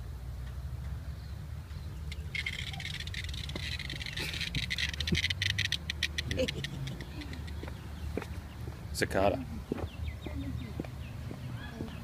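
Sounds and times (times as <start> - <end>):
cicada buzzing: 2.1 - 8.8.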